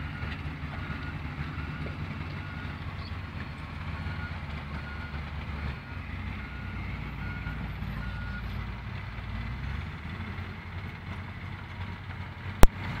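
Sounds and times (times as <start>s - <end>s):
heavy diesel machinery rumbling: 0.0s - 13.0s
reversing alarm beeps: 0.1s - 3.1s, 4.0s - 8.5s.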